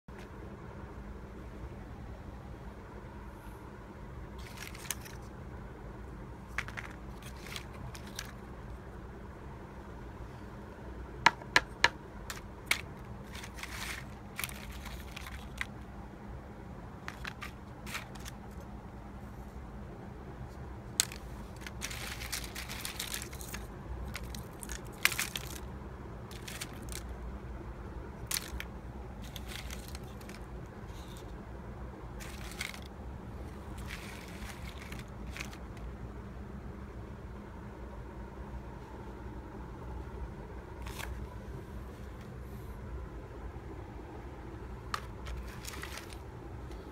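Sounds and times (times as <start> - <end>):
low background hum: 0.0 - 46.9
wood chips clicking and rustling: 4.4 - 5.3, 6.5 - 8.5, 11.5 - 15.9, 17.0 - 18.6, 20.9 - 27.1, 28.2 - 31.4, 32.1 - 35.9, 40.8 - 41.2, 44.9 - 46.9.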